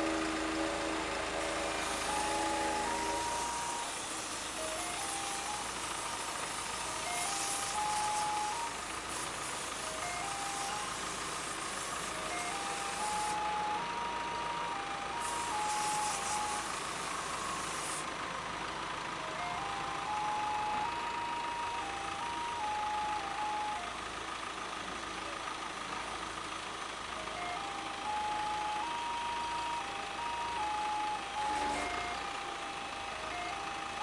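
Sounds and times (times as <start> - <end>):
electronic warning beeper tune: 0.0 - 8.9, 9.9 - 18.0, 27.4 - 34.0
hydraulic hiss: 0.0 - 13.7, 15.1 - 18.2, 31.3 - 32.2
engine and hydraulics running: 0.0 - 34.0.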